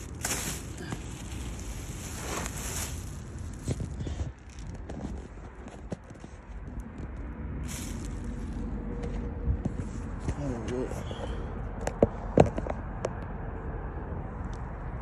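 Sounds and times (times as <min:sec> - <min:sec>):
plastic bag rustling on concrete: 0:00.0 - 0:06.4, 0:07.6 - 0:08.8.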